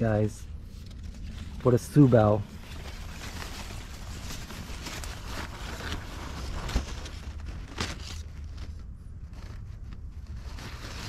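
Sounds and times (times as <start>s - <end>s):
low steady rumble: 0.0s - 11.0s
rustling handling noise: 0.0s - 11.0s.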